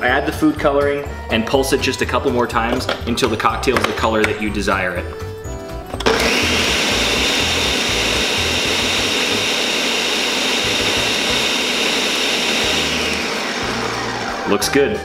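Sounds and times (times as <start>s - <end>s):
blender running: 6.0s - 14.7s.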